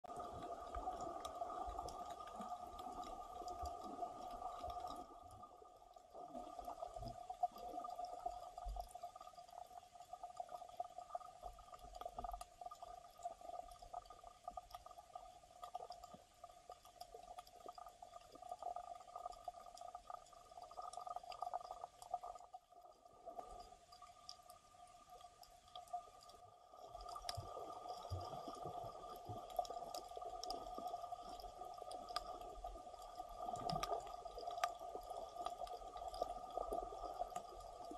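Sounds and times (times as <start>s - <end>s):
low underwater rumbles: 0.0s - 9.2s, 18.6s - 37.9s
faint clicks underwater: 0.1s - 37.9s.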